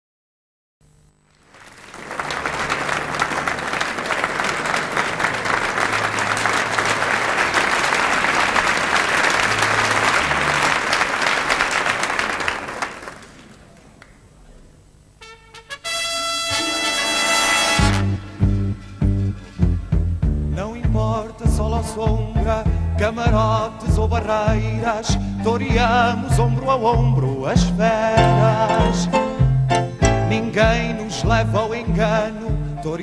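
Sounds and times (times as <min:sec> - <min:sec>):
audience applauding: 0:01.4 - 0:14.2.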